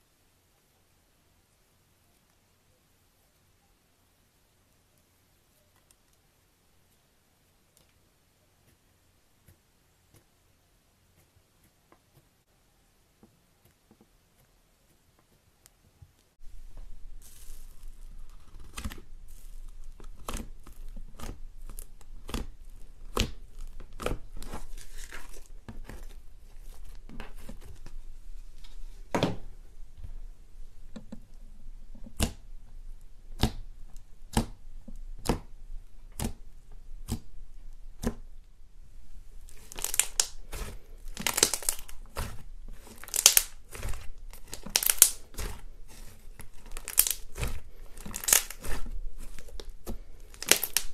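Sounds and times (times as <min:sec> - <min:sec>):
slime crackling and tearing: 0:16.6 - 0:28.0, 0:39.4 - 0:50.9
slime popping when pressed: 0:39.6 - 0:40.3, 0:42.9 - 0:43.6, 0:44.4 - 0:45.5, 0:46.8 - 0:48.8, 0:50.3 - 0:50.9.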